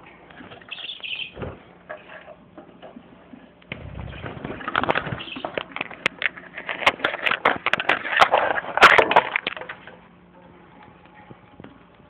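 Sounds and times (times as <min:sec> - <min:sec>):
rustling and scraping: 0:01.4 - 0:09.9
sharp clicks and cracks: 0:04.6 - 0:09.9.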